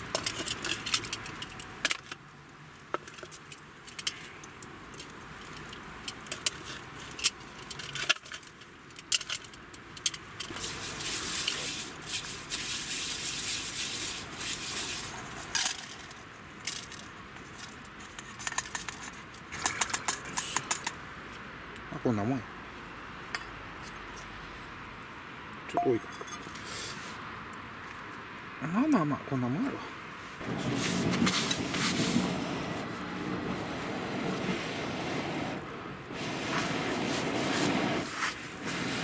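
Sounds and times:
wood fire crackling and popping: 0:00.0 - 0:21.4, 0:30.4 - 0:39.0
cookware clinking and rattling: 0:25.8 - 0:26.6.

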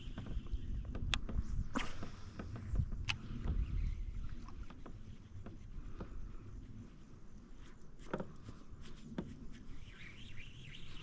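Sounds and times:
faint knocks and clicks: 0:08.0 - 0:09.4.

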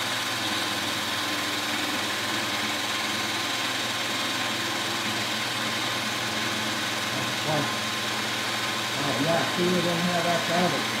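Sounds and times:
cordless drill whirring: 0:00.0 - 0:11.0.

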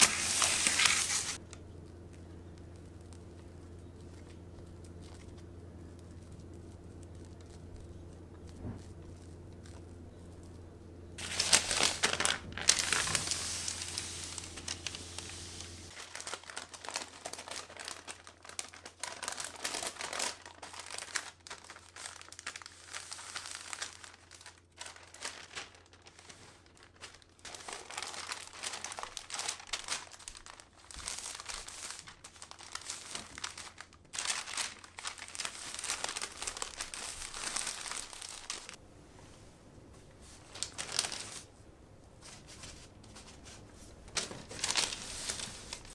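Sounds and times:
baking paper crinkling: 0:00.0 - 0:38.8, 0:40.2 - 0:41.5, 0:42.2 - 0:45.9.

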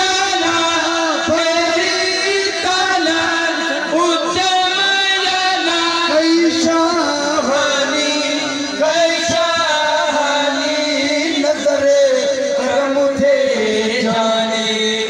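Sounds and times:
men chanting into a microphone: 0:00.0 - 0:15.0.

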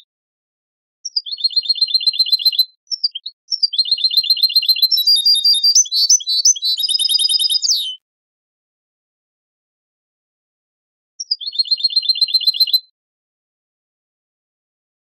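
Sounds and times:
bird chirps: 0:01.0 - 0:08.0, 0:11.2 - 0:12.9
goldfinch trills: 0:01.1 - 0:08.0.

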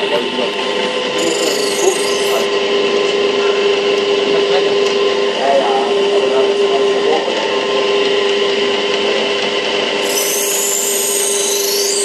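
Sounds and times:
grinding wheel humming: 0:00.0 - 0:12.0
knife grinding squeal: 0:01.2 - 0:02.5, 0:10.0 - 0:12.0.

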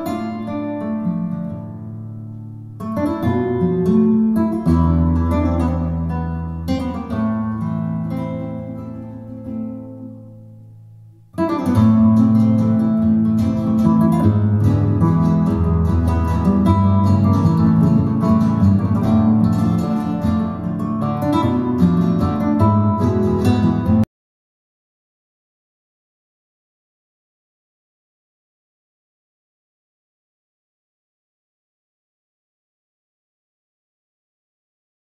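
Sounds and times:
flamenco acoustic guitar: 0:00.0 - 0:24.1.

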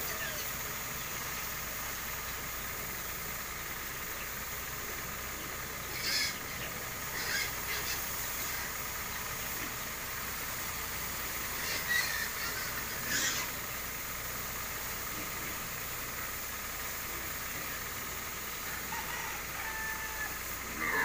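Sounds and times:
sprayer engine running: 0:00.0 - 0:21.0
pig squeals: 0:05.9 - 0:08.1, 0:11.5 - 0:13.6, 0:18.9 - 0:21.0.

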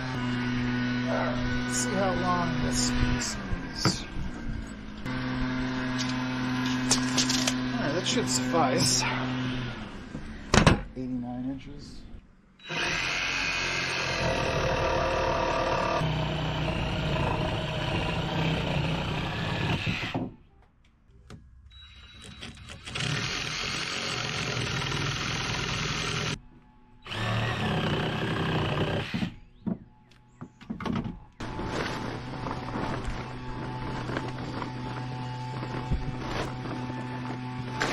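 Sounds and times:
circular saw cutting timber: 0:00.0 - 0:04.2, 0:05.0 - 0:10.0, 0:12.6 - 0:20.3, 0:21.9 - 0:26.4, 0:27.0 - 0:29.4.

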